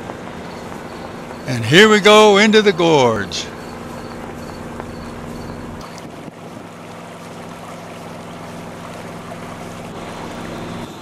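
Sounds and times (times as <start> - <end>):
boat engine running: 0.0 - 11.0
water rushing past hulls: 0.0 - 11.0
wind on the microphone: 5.8 - 6.8.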